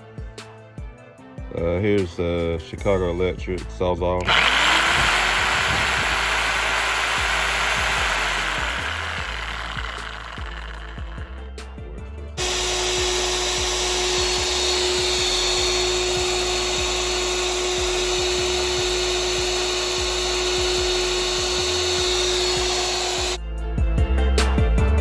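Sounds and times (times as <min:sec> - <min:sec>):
background music with a beat: 0:00.0 - 0:03.9, 0:23.4 - 0:25.0
reciprocating saw whine: 0:04.2 - 0:11.4, 0:12.4 - 0:23.4.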